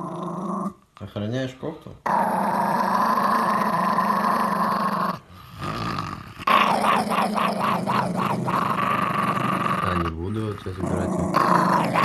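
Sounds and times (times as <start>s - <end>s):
small dog growling: 0.0s - 0.8s, 2.0s - 12.0s.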